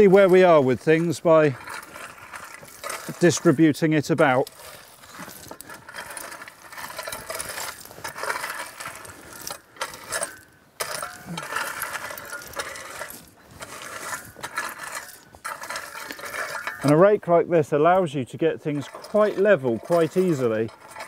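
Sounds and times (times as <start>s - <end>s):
rake scraping crushed stone: 0.0s - 21.0s.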